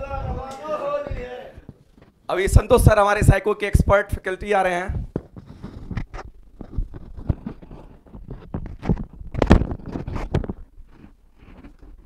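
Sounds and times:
microphone handling knocks and clicks: 4.9s - 12.0s.

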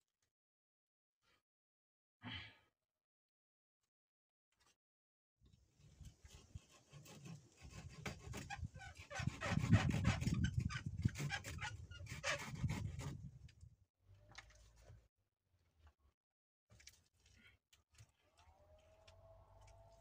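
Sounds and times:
wooden branches rubbing and scraping: 5.8s - 13.5s.

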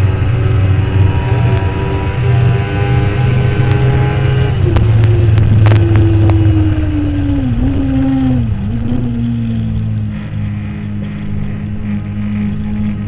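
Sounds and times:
motorcycle engine running flat out: 0.0s - 13.0s.

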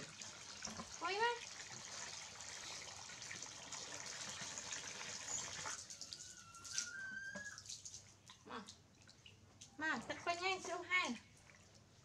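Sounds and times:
hose water pouring into plastic basin: 0.0s - 8.1s.

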